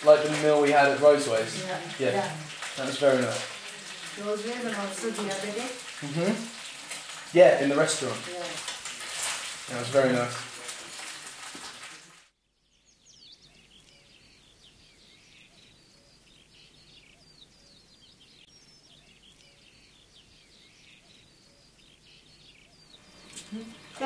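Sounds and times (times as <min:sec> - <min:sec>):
small birds chirping: 0:00.0 - 0:11.8, 0:12.4 - 0:24.0
frying in a pan: 0:00.0 - 0:12.3, 0:22.8 - 0:24.0.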